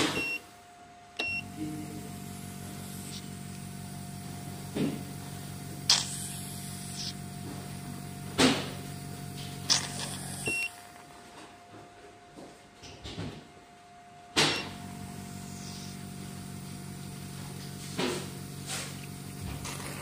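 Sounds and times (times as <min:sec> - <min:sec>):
vacuum pump humming: 0:00.0 - 0:11.7, 0:14.3 - 0:20.0
sharp hissing suction pops: 0:05.9 - 0:07.2.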